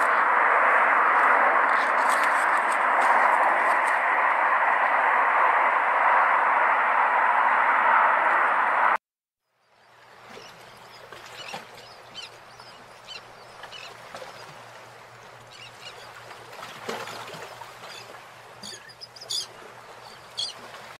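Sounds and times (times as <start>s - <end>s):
steady outdoor hiss: 0.0s - 21.0s
birds chirping: 9.6s - 20.8s.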